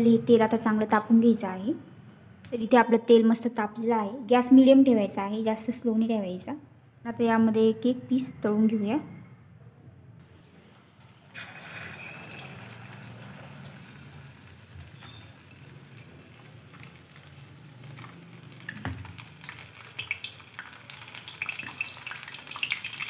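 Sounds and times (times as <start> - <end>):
oil sizzling while deep-frying: 10.2 - 23.0.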